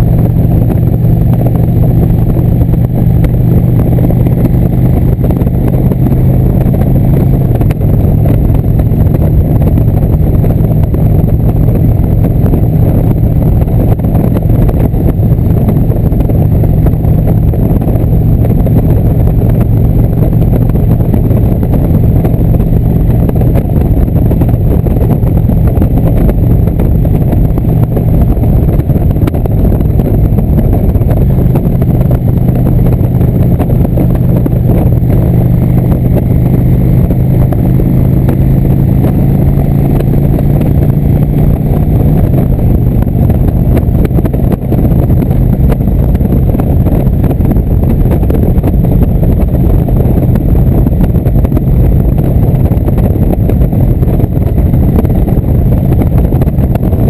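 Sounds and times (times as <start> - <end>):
motorcycle engine running: 0.0 - 57.0
wind and road noise: 0.0 - 57.0.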